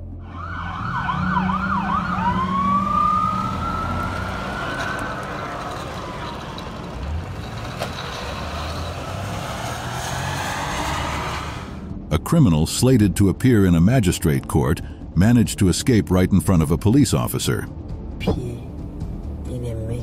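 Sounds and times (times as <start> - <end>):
police siren: 0.1 - 11.8
vehicle engines rumbling: 0.3 - 12.1.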